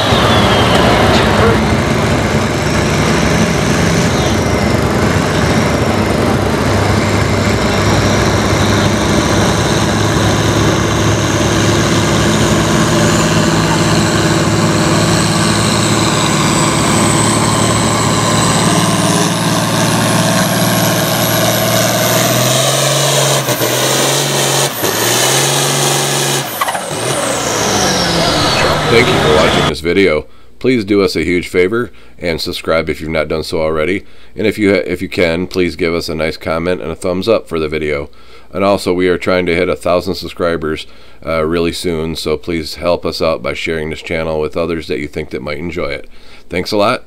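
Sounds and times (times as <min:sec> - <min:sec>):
engine knocks: 0:00.0 - 0:29.7
high whine: 0:00.0 - 0:29.7
tractor diesel engine under load: 0:00.0 - 0:29.8.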